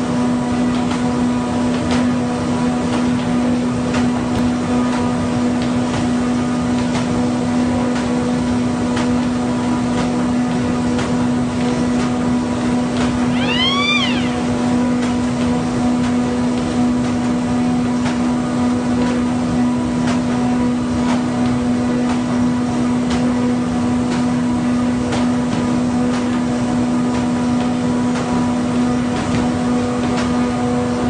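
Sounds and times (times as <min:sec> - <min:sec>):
short pitched squeal: 0:13.3 - 0:14.6.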